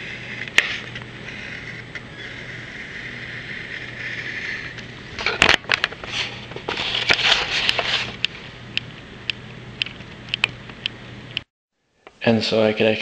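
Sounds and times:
pencil scratching on metal: 0.0s - 4.7s.

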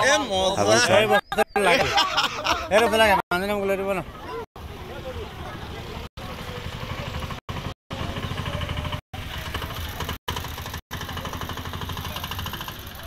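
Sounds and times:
small engine running fast: 6.3s - 13.0s.

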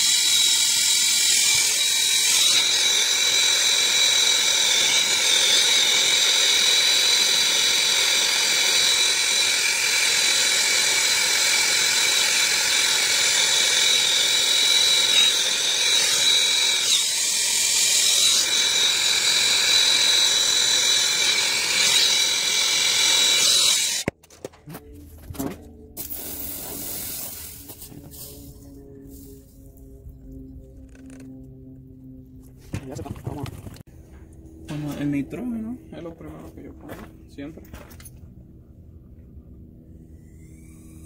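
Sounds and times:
gas hissing through pipes: 2.8s - 15.4s, 26.0s - 28.3s.

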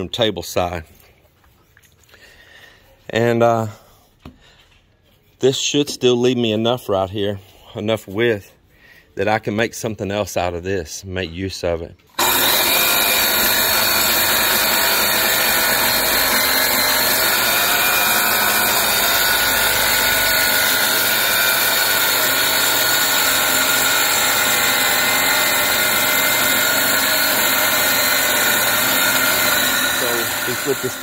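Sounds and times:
circular saw cutting wood: 12.2s - 31.0s.

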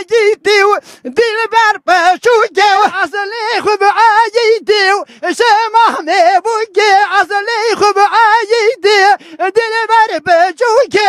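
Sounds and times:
man singing unaccompanied: 0.0s - 11.0s.

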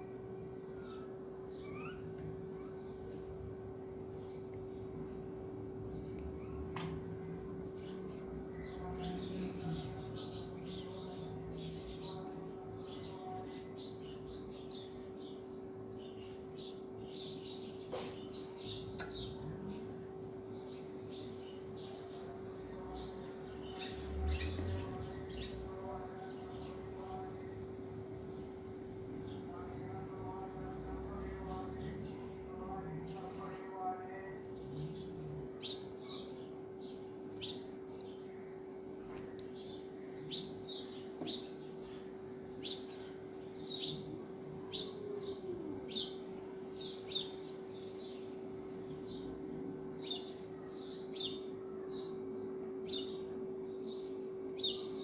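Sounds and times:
small birds chirping: 0.0s - 55.0s
steady hum: 0.0s - 55.0s.

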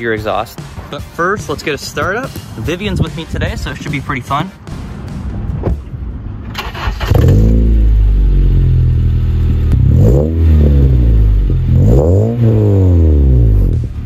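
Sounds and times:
car engine starting and idling: 5.6s - 14.0s
engine revving: 6.5s - 14.0s.

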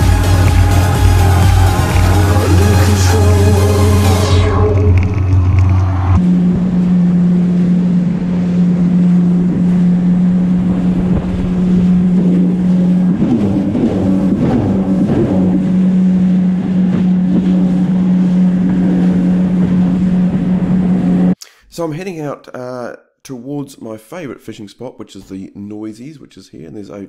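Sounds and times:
jet ski engine running: 0.0s - 21.4s
wind and water spray: 6.5s - 21.0s.

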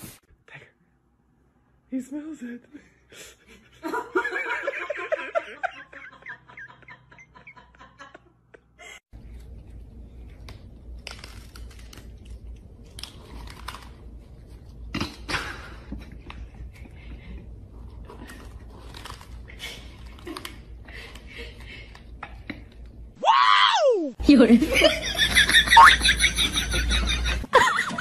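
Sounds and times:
cats crunching dry kibble: 9.2s - 14.9s, 17.7s - 22.1s.

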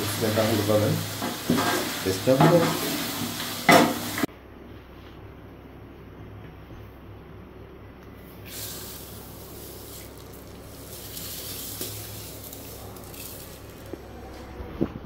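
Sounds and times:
rice pouring and splashing into pot: 8.5s - 14.2s.

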